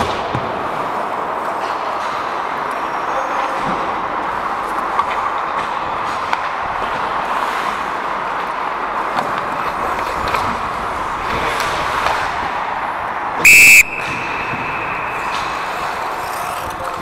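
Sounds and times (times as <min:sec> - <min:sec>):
referee's whistle blast: 0:13.4 - 0:15.3.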